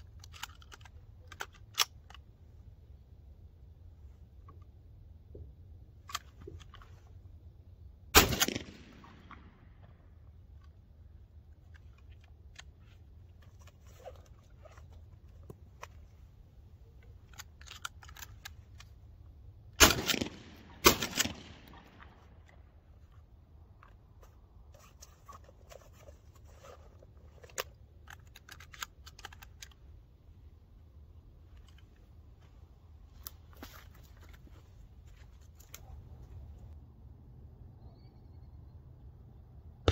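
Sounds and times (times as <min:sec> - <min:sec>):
shotgun shots: 0:08.1 - 0:09.6, 0:19.8 - 0:22.3.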